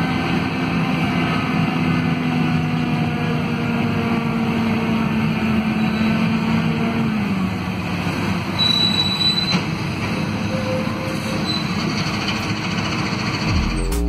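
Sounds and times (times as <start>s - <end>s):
bus drivetrain hum: 0.0s - 14.0s
brief high squeal: 8.6s - 9.8s, 10.4s - 11.9s.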